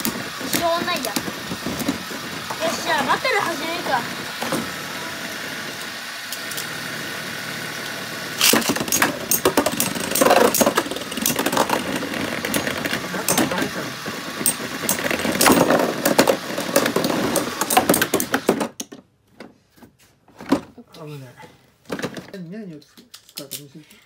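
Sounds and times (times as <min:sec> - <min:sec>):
spinning tops whirring: 0:00.0 - 0:18.5
tops clacking together: 0:08.4 - 0:19.0.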